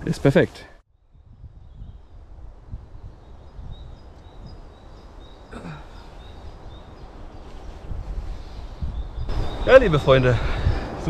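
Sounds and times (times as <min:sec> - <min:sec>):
wind buffeting microphone: 0:01.0 - 0:11.0.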